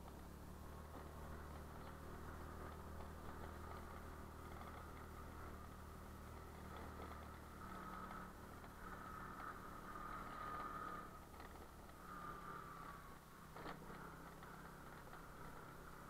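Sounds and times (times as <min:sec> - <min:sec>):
small motorbike engine running: 0:00.0 - 0:16.0.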